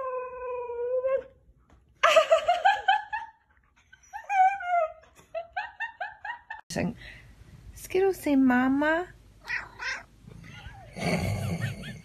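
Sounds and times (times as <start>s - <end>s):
dog yipping: 9.5s - 10.9s.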